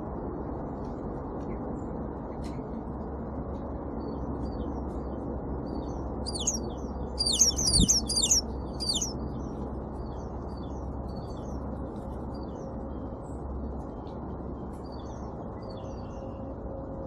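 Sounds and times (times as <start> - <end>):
low background noise: 0.0 - 17.0
high downward-sweeping bird notes: 6.3 - 6.6, 7.2 - 9.1
faint bird chirps: 6.3 - 9.2.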